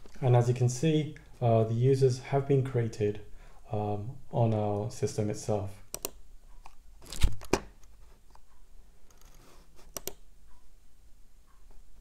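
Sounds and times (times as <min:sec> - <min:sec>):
computer mouse clicks: 0:05.9 - 0:07.6, 0:08.3 - 0:10.2.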